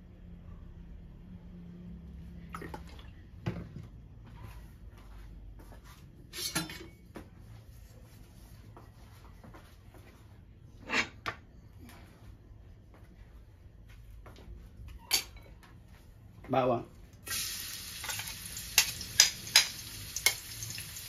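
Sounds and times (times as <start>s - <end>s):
kitchen knocks and clatters: 6.3s - 7.3s, 18.0s - 20.4s.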